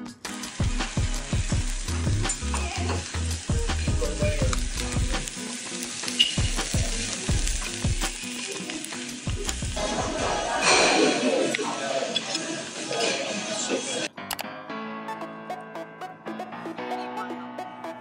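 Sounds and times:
food sizzling in hot pots: 0.0 - 14.1.

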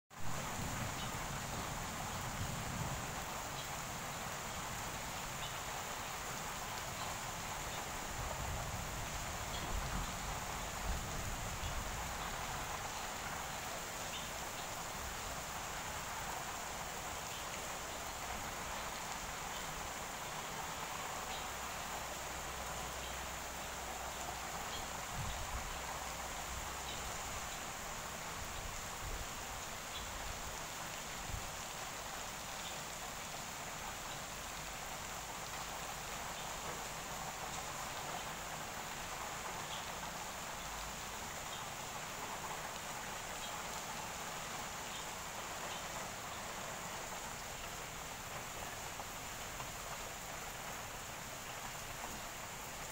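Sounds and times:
light rain hissing: 0.1 - 52.9.

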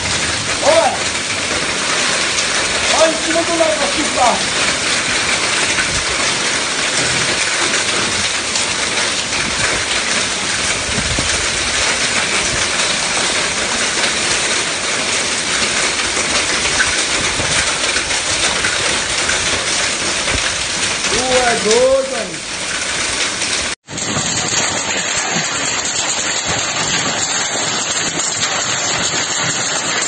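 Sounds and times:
heavy rain and hail: 0.0 - 30.0.

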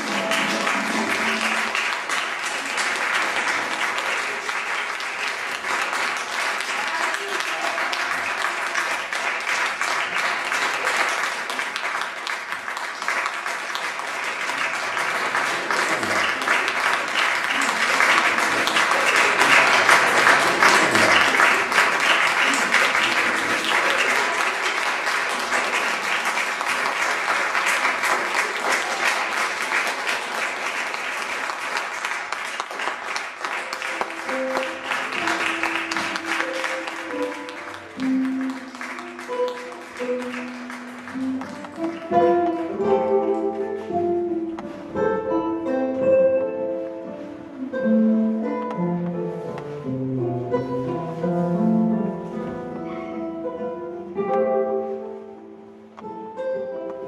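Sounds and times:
audience applauding: 0.0 - 43.8
music with sustained notes: 33.7 - 57.0.

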